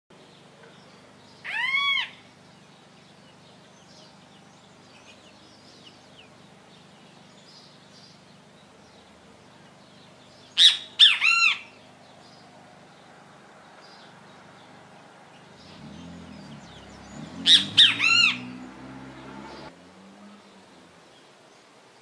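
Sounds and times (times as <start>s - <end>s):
bird calling: 1.4s - 8.3s, 9.6s - 12.5s, 13.8s - 19.7s.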